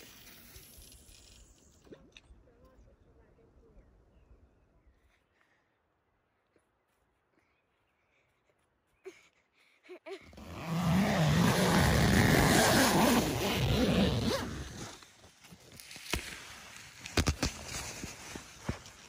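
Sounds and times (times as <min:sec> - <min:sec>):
tent zipper pulled open: 0:10.3 - 0:15.2
crunches and clicks: 0:10.3 - 0:19.0.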